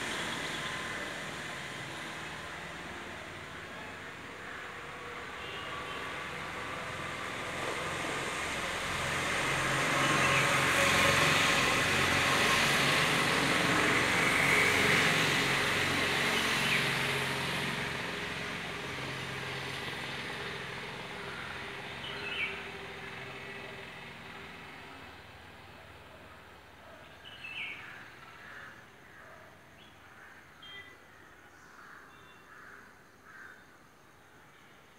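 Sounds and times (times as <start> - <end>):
passing vehicle rumble: 4.9 - 26.8.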